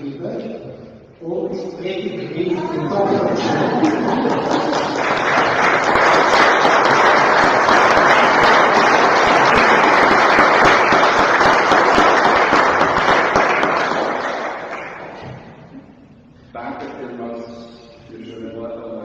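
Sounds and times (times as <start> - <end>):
crowd applauding: 2.6 - 15.4.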